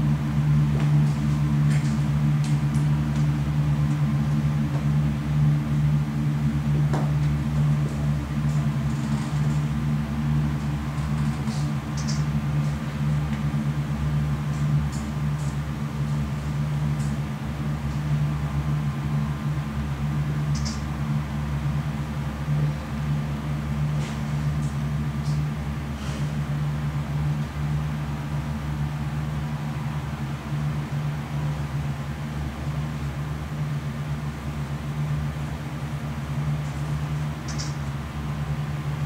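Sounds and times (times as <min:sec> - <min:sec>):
faint short clicks: 0:37.5 - 0:37.8.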